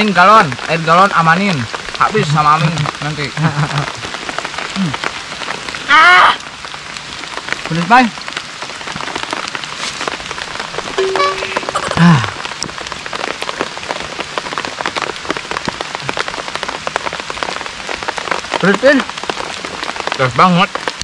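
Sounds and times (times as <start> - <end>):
steady rain on ground and leaves: 0.0 - 21.0
person humming and exclaiming: 5.9 - 6.4.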